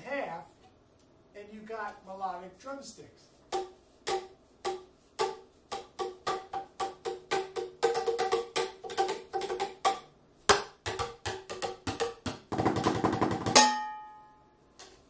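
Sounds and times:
hollow pitched tube strikes: 3.5s - 8.8s, 9.8s - 14.3s.

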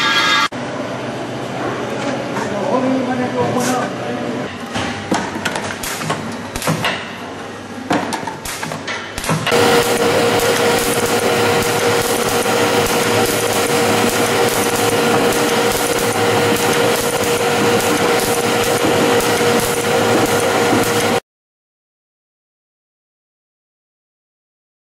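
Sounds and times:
machine clatter with hum: 8.1s - 21.2s.

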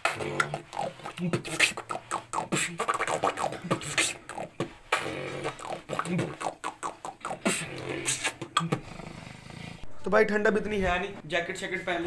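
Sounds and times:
person beatboxing: 0.0s - 8.9s.

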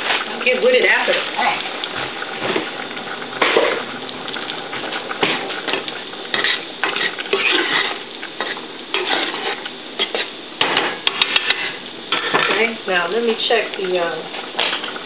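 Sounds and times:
frying sizzle in oil: 0.0s - 15.0s
knocks and scrapes on pot: 4.7s - 12.7s.

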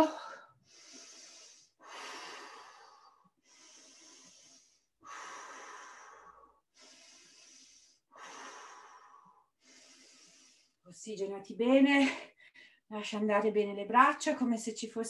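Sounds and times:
woman breathing slowly: 0.0s - 10.9s.

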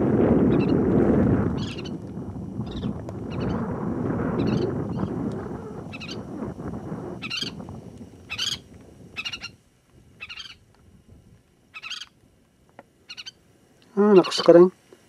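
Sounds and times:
wind on microphone: 0.0s - 12.3s
bird warbling call: 0.5s - 0.8s, 1.6s - 2.0s, 2.6s - 3.7s, 4.4s - 6.3s, 7.2s - 7.6s, 8.3s - 9.6s, 10.2s - 10.7s, 11.7s - 12.2s, 13.0s - 14.5s.

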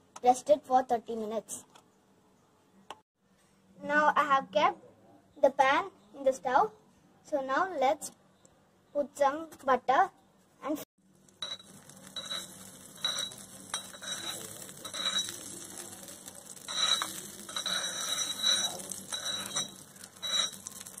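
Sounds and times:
metal spoon scraping metal pan: 11.4s - 21.0s.

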